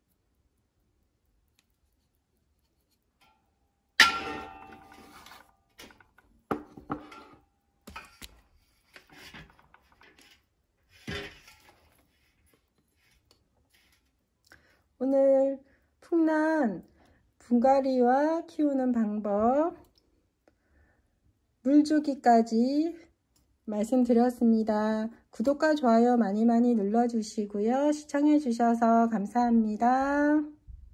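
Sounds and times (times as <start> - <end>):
metal basin clanking and ringing: 4.0 - 5.1
clay pots knocking and scraping: 4.0 - 12.1.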